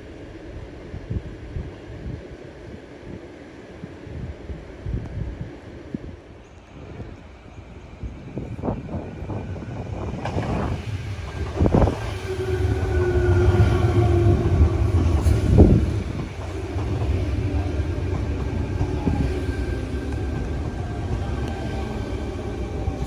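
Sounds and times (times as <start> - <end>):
train wheels rumbling on rail: 0.0 - 23.0
train brakes whining: 6.5 - 23.0.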